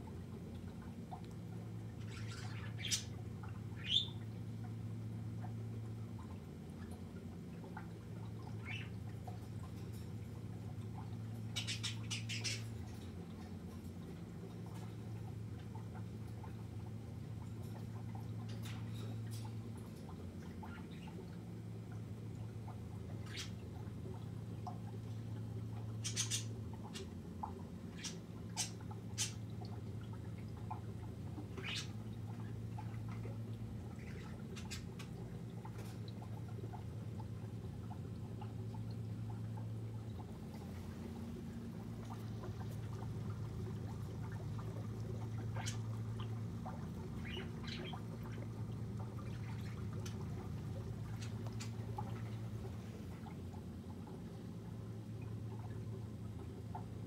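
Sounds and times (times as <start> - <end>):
aquarium equipment humming: 0.0 - 57.0
birds chirping and squawking: 2.0 - 4.2, 8.6 - 9.0, 11.5 - 13.1, 26.0 - 27.1, 31.5 - 32.9, 47.1 - 48.1.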